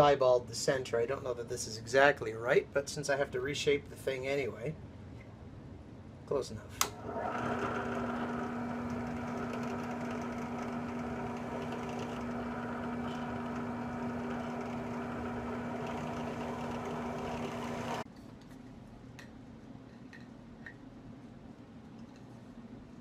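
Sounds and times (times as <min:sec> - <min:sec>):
drill press motor humming: 0:06.9 - 0:18.0.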